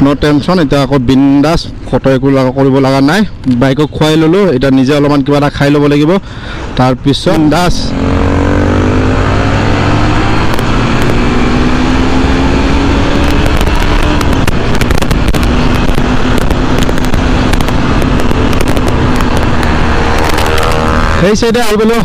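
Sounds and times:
wind noise on microphone: 0:07.4 - 0:21.7
motorcycle engine pulling hard: 0:07.6 - 0:22.0.

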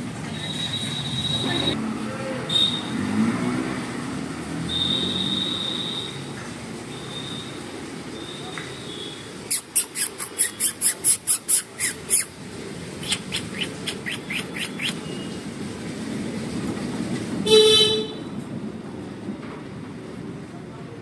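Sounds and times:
low street rumble: 0:00.0 - 0:21.0
vehicle horn honking: 0:02.5 - 0:03.0, 0:04.7 - 0:06.2, 0:17.4 - 0:18.4.

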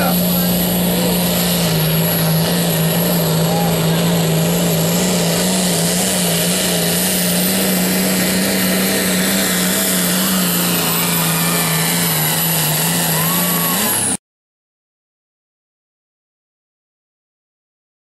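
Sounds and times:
tractor engine at high revs: 0:00.0 - 0:14.2.

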